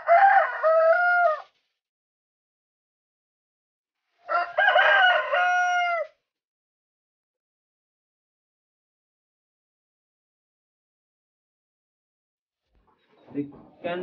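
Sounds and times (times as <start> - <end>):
rooster crowing: 0.0 - 1.6, 4.3 - 6.2.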